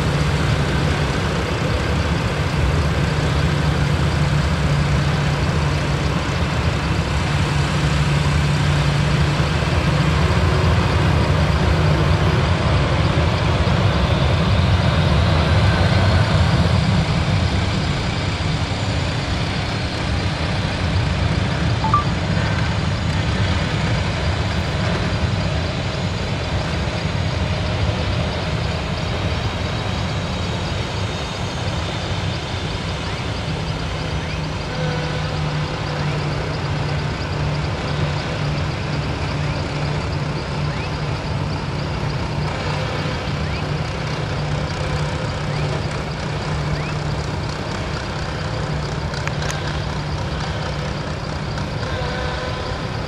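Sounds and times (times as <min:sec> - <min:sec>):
jet engines idling: 0:00.0 - 0:53.0
brief high blip: 0:21.8 - 0:22.2.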